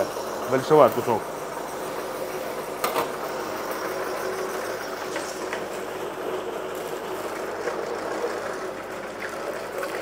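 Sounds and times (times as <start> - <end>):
meat grinder motor hum: 0.0 - 10.0.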